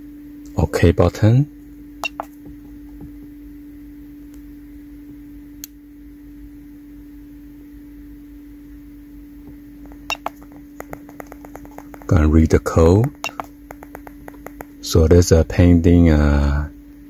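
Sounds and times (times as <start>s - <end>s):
steady low hum: 0.0s - 17.0s
keypad button clicks: 2.0s - 2.3s, 9.9s - 12.1s, 13.1s - 14.7s.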